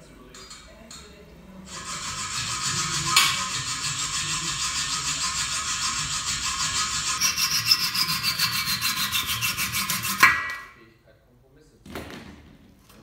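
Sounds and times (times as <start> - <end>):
hand scraper scraping metal: 1.7 - 10.8.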